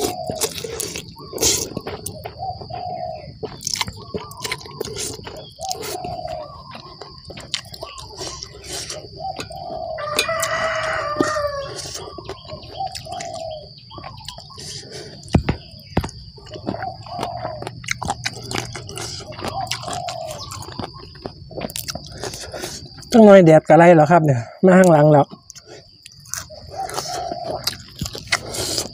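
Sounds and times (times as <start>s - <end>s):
chicken calls: 0.0s - 23.2s, 24.4s - 28.9s
rooster crowing: 9.2s - 13.6s.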